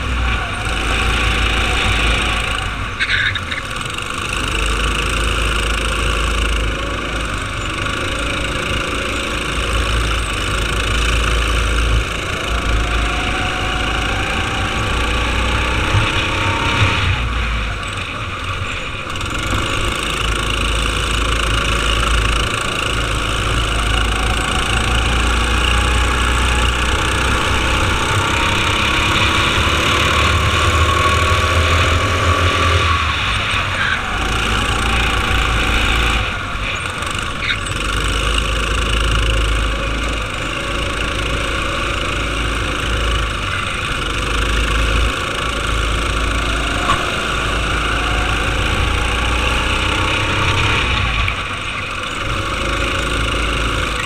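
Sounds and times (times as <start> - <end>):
go-kart engine running hard: 0.0 - 54.0.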